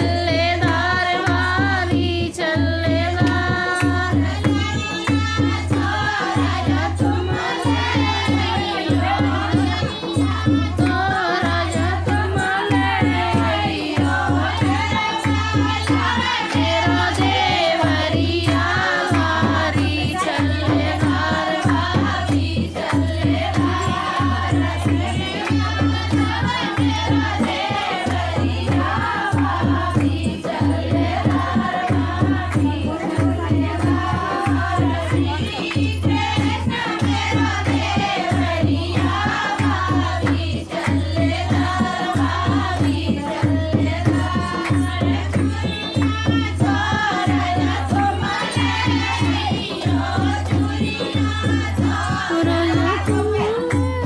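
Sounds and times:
folk singing: 0.0 - 54.0
steady drum beat: 0.0 - 54.0.

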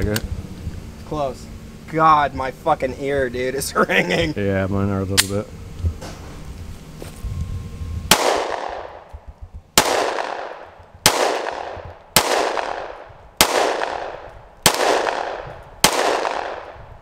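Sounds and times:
gunshots echoing: 8.1 - 9.0, 9.8 - 16.8.

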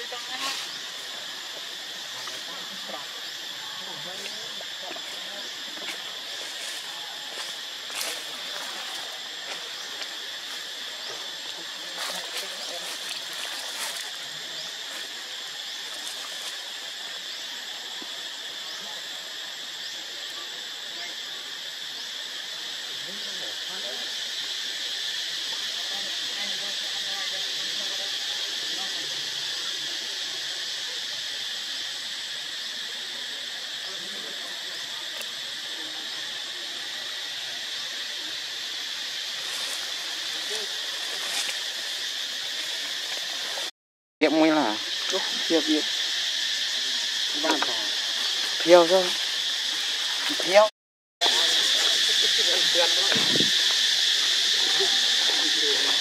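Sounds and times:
insect chorus drone: 0.0 - 56.0.

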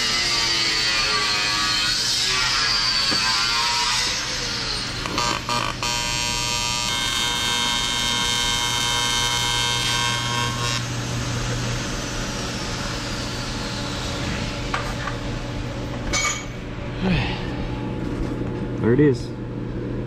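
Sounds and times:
welding arc buzzing: 0.0 - 15.5
low steady hum: 5.0 - 20.0.

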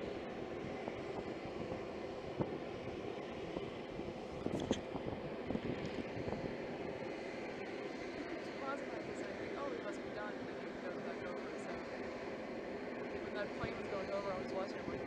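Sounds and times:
aircraft turbine drone: 0.0 - 15.0.

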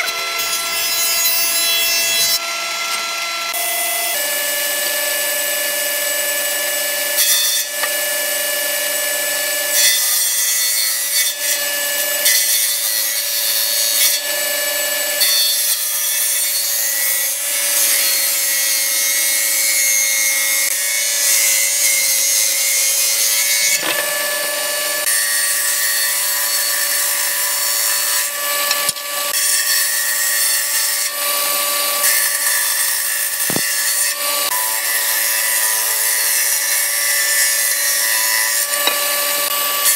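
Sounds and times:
table saw whining: 0.0 - 39.9
saw blade ripping wood: 20.6 - 39.9.

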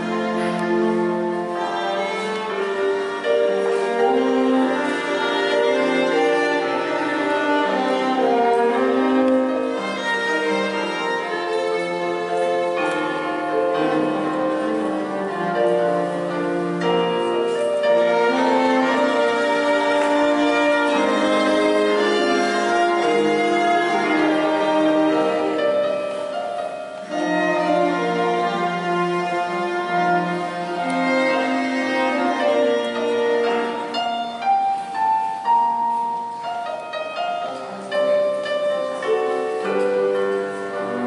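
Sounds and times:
french horn: 0.0 - 26.2
cello: 0.0 - 41.0
violins: 0.0 - 41.0.

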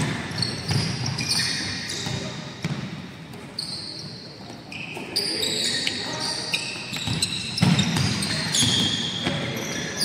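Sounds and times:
basketball bouncing: 0.0 - 1.2, 6.9 - 9.4
sneakers squeaking on gym floor: 0.0 - 10.0.

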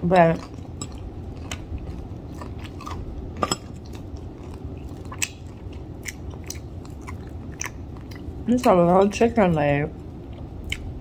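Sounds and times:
chewing food: 0.0 - 11.0
wet mouth clicks: 5.0 - 8.3.

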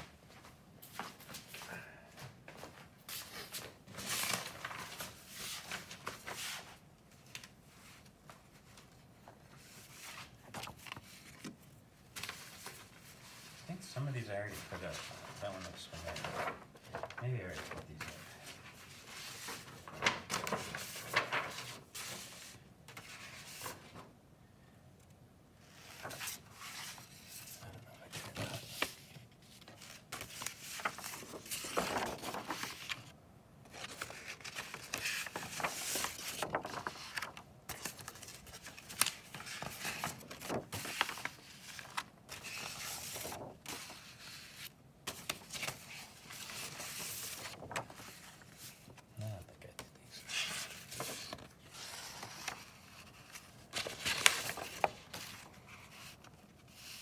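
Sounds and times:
paper rustling and shuffling: 0.0 - 24.1, 25.6 - 57.0
paper sheets scraping: 25.7 - 33.1, 33.7 - 49.0, 50.1 - 57.0.

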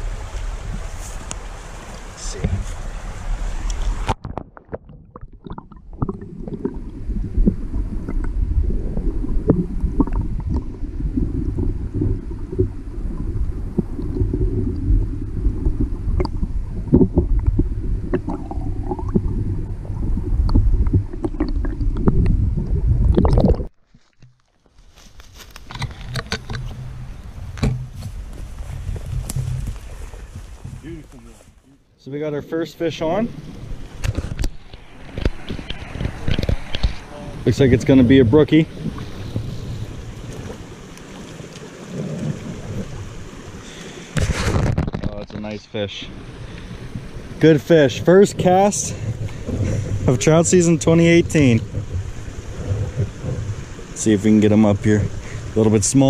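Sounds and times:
underwater stream rumble: 0.0 - 23.8, 25.6 - 31.0, 32.3 - 56.0
outdoor crackling: 0.0 - 56.0
underwater clicks: 3.6 - 8.4, 15.6 - 24.5, 25.6 - 27.9, 34.0 - 37.1.

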